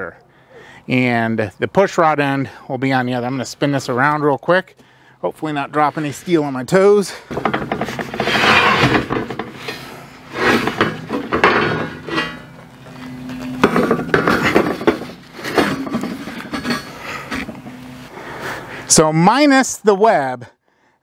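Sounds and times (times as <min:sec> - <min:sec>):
steel plates clanking and scraping: 0:07.1 - 0:18.1.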